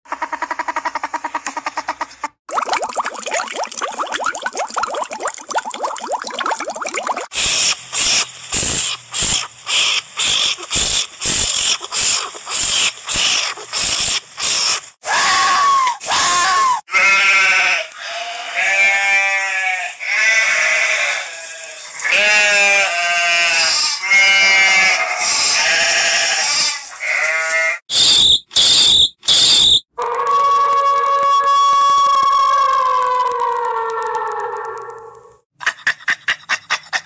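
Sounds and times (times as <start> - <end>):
sheep bleating: 16.9 - 27.8.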